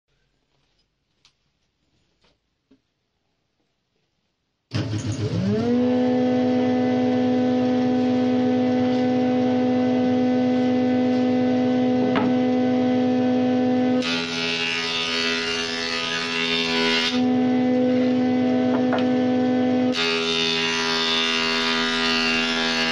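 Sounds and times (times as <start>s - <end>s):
jointer motor whining and humming: 4.7s - 14.8s, 16.2s - 21.7s.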